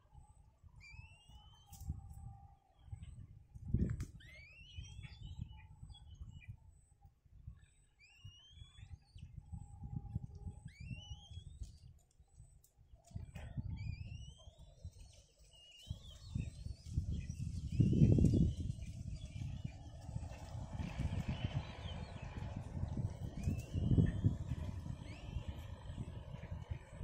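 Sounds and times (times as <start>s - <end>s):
kites whistled calls: 4.1s - 6.4s, 13.1s - 26.4s
low rumble: 16.0s - 27.0s.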